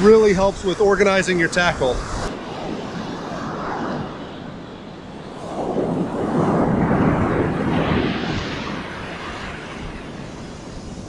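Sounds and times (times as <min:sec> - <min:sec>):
ocean wave breaking: 0:01.1 - 0:11.0.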